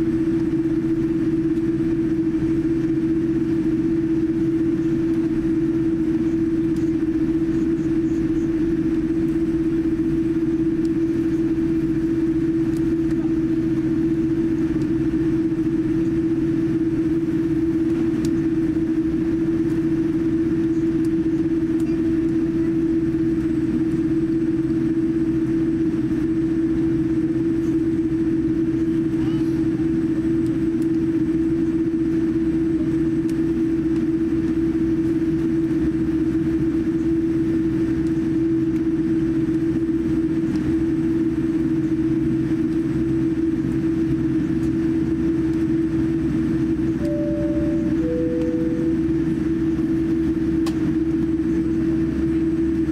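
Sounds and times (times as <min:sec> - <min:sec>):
airplane cabin rumble: 0:00.0 - 0:52.9
constant hum tone: 0:00.0 - 0:52.9.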